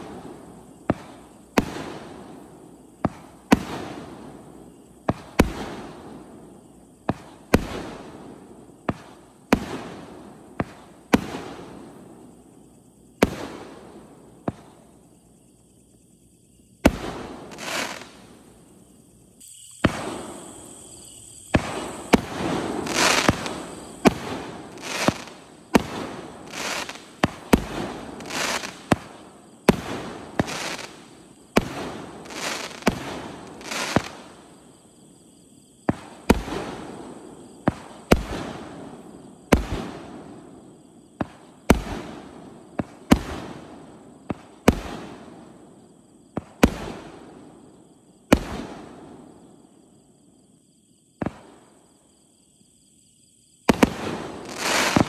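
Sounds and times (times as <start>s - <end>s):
fireworks reports: 19.4s - 29.1s.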